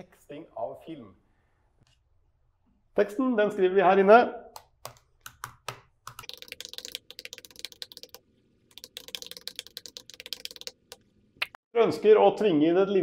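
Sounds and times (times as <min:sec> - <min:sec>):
laptop keyboard typing: 0:04.6 - 0:11.1.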